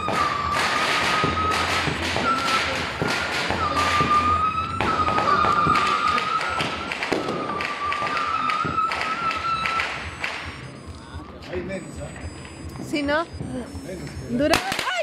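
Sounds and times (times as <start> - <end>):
firework pops and bangs: 0.0 - 10.6, 14.5 - 15.0
high firework whistle: 0.0 - 10.9.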